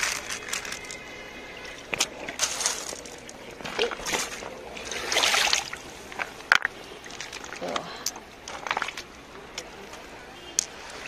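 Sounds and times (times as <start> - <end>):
water splashing among pebbles: 0.0 - 9.2.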